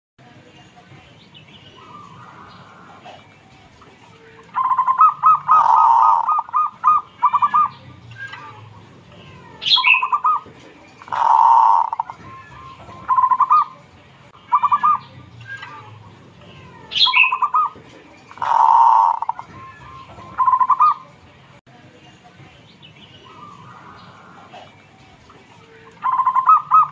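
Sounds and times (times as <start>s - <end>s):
dove cooing: 4.6s - 7.7s, 9.6s - 12.2s, 12.9s - 13.8s, 17.0s - 19.5s, 20.2s - 21.0s, 26.0s - 26.9s.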